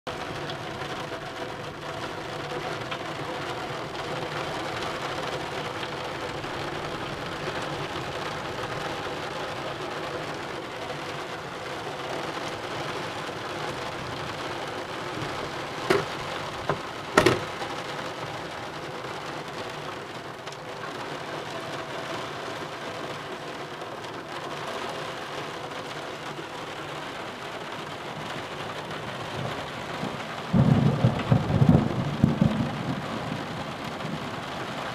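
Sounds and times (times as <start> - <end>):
steady rain: 0.0 - 34.9
sharp knocks: 15.2 - 17.6.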